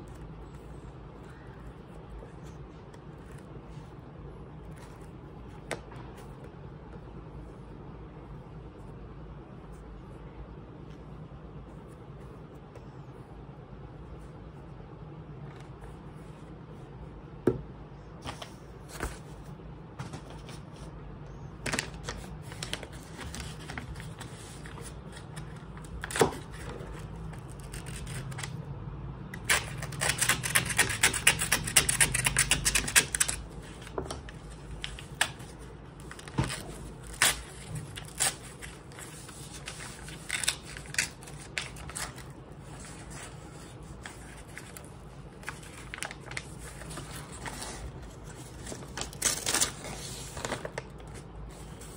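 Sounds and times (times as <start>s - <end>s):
paper mailer rustling: 29.5s - 51.9s.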